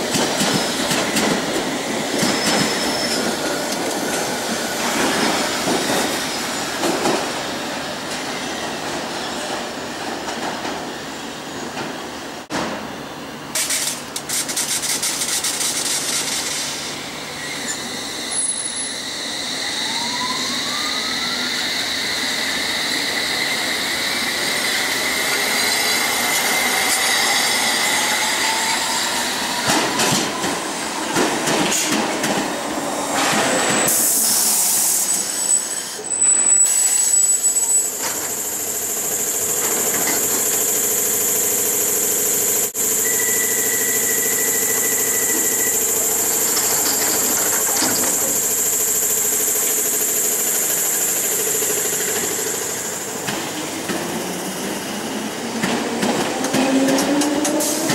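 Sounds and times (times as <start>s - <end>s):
standing train hum: 0.0s - 36.2s, 37.2s - 57.9s
loud high squeal: 1.8s - 3.4s, 16.1s - 30.8s, 33.1s - 38.6s, 43.0s - 48.6s
train traction motors whining: 39.4s - 57.9s.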